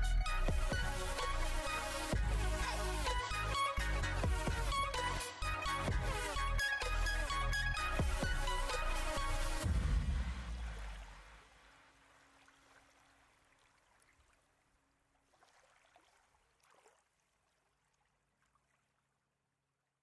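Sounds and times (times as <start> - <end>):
background music: 0.0 - 10.9.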